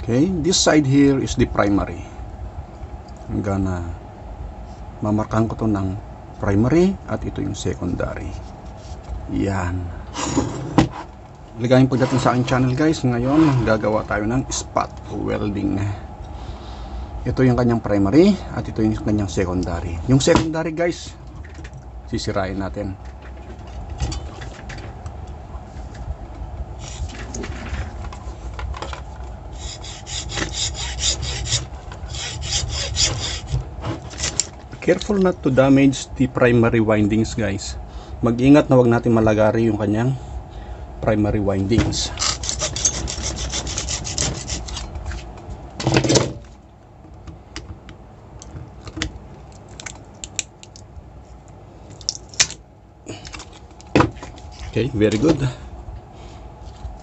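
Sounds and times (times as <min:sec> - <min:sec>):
hacksaw rasping through metal: 0:29.6 - 0:34.5, 0:42.2 - 0:44.9.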